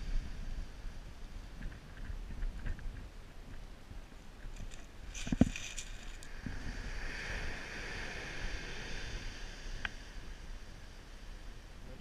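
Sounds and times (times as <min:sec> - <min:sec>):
wind on microphone: 0:00.0 - 0:12.0
surf on shingle beach: 0:04.3 - 0:11.8.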